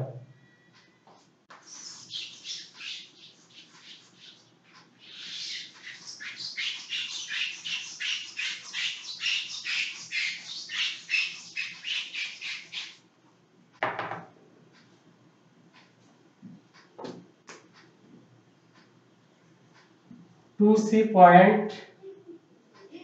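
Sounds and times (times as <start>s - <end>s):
eraser rubbing whiteboard: 1.5s - 13.0s.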